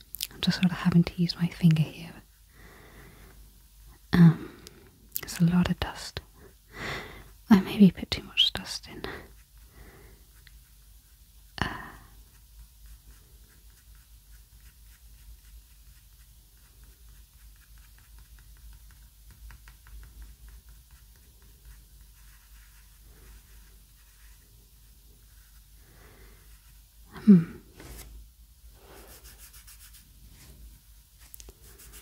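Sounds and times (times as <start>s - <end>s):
fingertip rubbing on paper: 12.3s - 25.7s, 28.8s - 30.6s, 31.2s - 32.0s.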